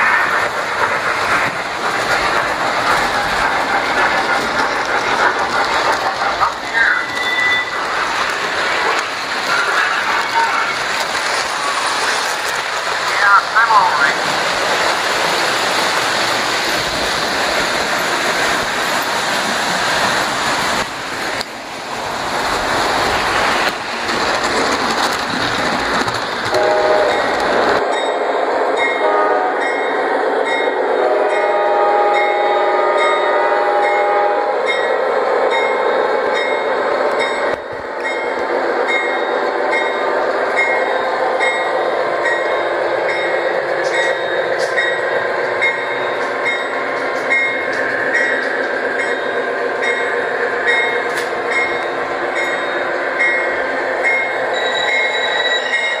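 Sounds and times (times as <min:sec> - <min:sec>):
model trains rumbling on track: 0:00.0 - 0:56.0
model train horn: 0:26.6 - 0:27.1, 0:29.0 - 0:29.6, 0:30.9 - 0:34.5.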